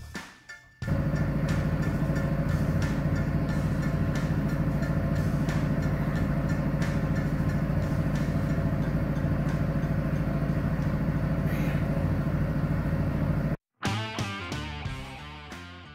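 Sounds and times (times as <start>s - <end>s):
machine throbbing hum: 0.9s - 13.6s.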